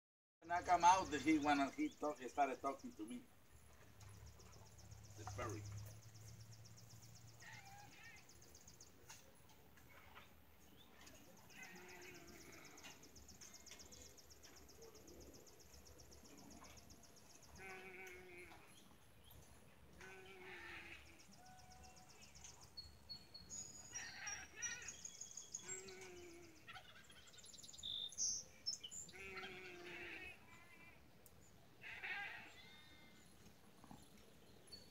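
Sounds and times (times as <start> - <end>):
birds chirping and trilling: 0.4 - 34.9
faint animal calls: 7.4 - 8.4, 9.8 - 13.8, 20.0 - 22.3, 23.9 - 25.0, 25.6 - 27.4, 29.1 - 31.0, 31.8 - 33.2.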